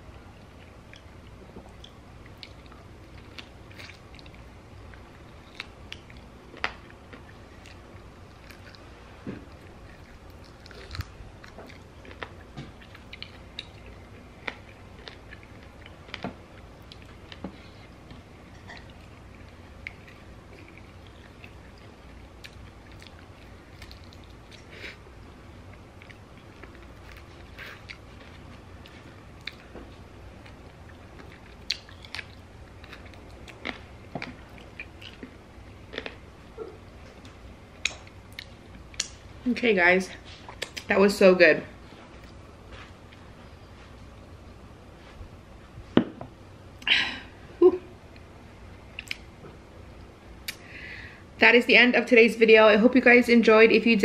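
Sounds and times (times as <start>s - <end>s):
chewing and biting: 0.5s - 25.0s, 25.7s - 39.2s
mouth smacks and clicks: 40.4s - 40.9s, 48.9s - 49.3s, 50.4s - 50.6s.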